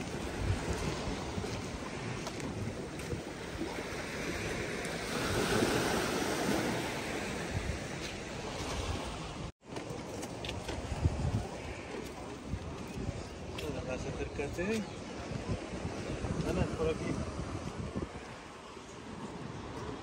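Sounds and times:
sea surf washing: 0:00.0 - 0:09.5
wind on microphone: 0:00.0 - 0:09.5, 0:10.4 - 0:20.0.

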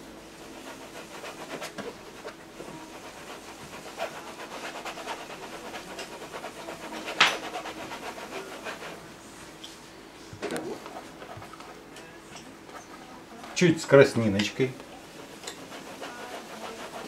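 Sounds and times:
paintbrush scrubbing on canvas: 0:00.3 - 0:09.1, 0:15.0 - 0:17.0.

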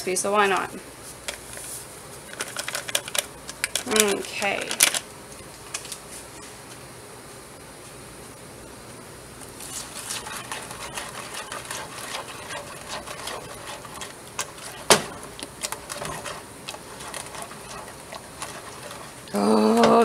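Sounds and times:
masher scraping against pot: 0:09.6 - 0:19.3.

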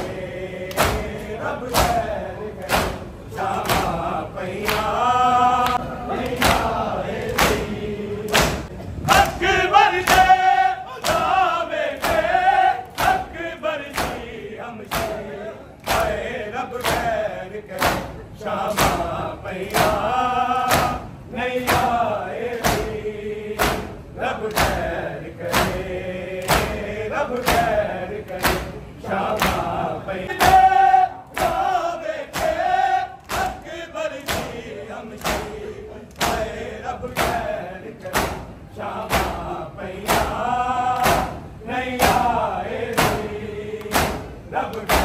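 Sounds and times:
men chanting: 0:00.0 - 0:45.0
palms slapping bare chests: 0:39.1 - 0:41.4.

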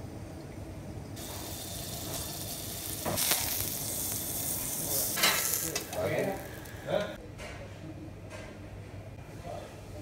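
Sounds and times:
oil sizzling in a frying pan: 0:01.2 - 0:06.9.

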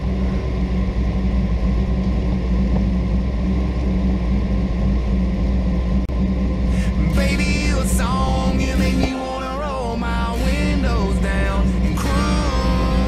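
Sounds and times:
truck engine rumbling: 0:00.0 - 0:13.0.

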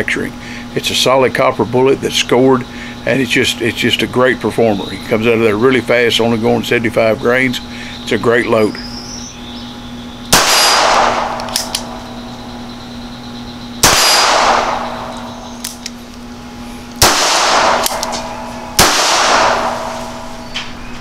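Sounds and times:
pistol shots: 0:10.3 - 0:12.0, 0:13.8 - 0:15.8, 0:17.0 - 0:20.3.

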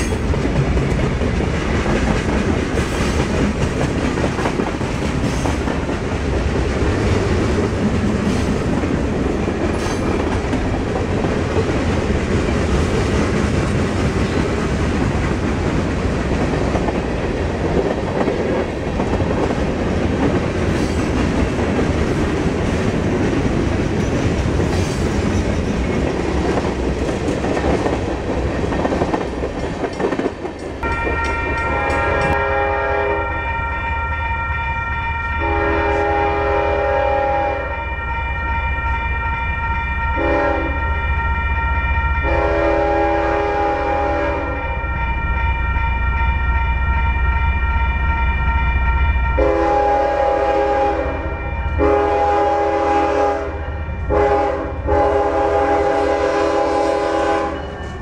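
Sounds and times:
train wheels clattering: 0:00.0 - 0:32.4
crossing warning bell: 0:28.5 - 0:52.3, 0:56.8 - 0:58.0
locomotive chime horn: 0:30.8 - 0:58.0.

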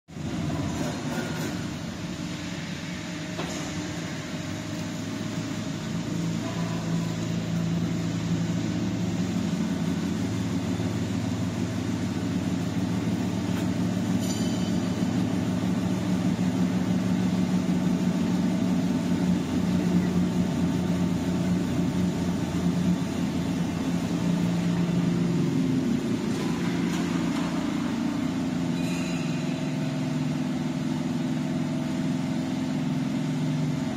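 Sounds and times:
machine motors humming: 0:00.2 - 0:33.9.

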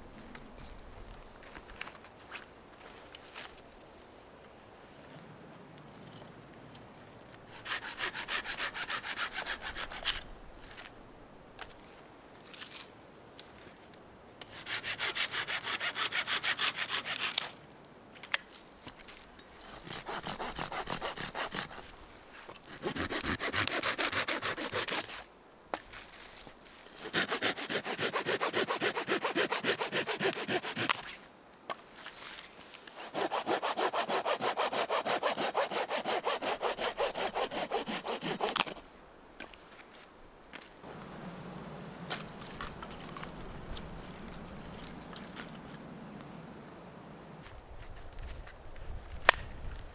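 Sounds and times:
hand saw cutting a branch: 0:07.5 - 0:10.3, 0:14.4 - 0:17.6, 0:19.6 - 0:25.3, 0:27.0 - 0:31.2, 0:32.3 - 0:38.8, 0:42.0 - 0:45.6.

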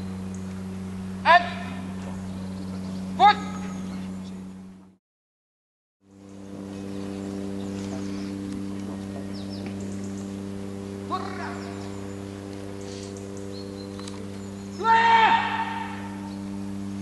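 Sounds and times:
low electrical hum: 0:00.0 - 0:05.0, 0:06.0 - 0:17.0
short shout: 0:14.8 - 0:16.1.

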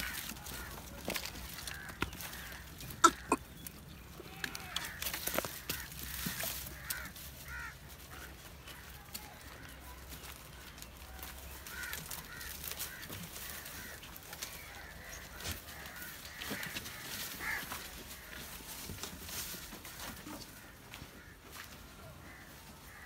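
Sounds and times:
birds calling: 0:00.0 - 0:23.0
leafy branches rustling and snapping: 0:11.0 - 0:20.1.

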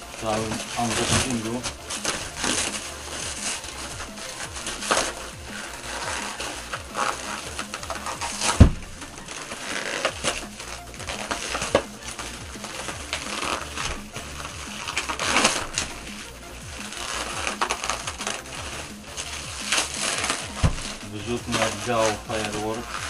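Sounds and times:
plastic ripping: 0:00.0 - 0:23.0
plastic wrap crinkling: 0:00.0 - 0:23.0.

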